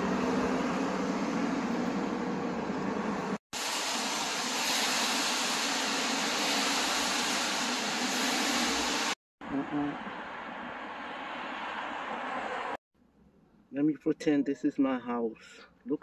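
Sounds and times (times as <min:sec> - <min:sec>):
city street hiss: 0:00.0 - 0:12.8
low traffic hum: 0:00.0 - 0:14.3.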